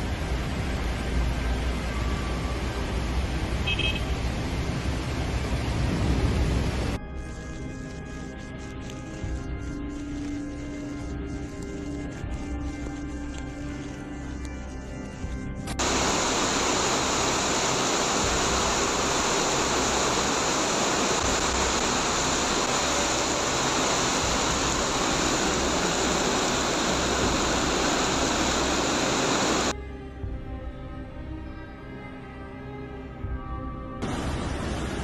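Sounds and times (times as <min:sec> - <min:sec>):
torrential rain pouring: 0:00.0 - 0:07.0, 0:15.8 - 0:29.7, 0:34.0 - 0:35.0.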